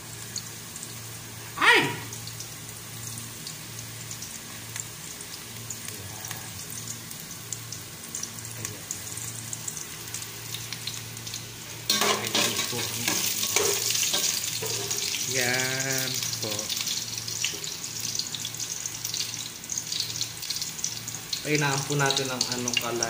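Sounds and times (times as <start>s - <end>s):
garlic and onion sizzling in oil: 0.0s - 23.0s
metal ladle scraping pot: 11.9s - 15.0s.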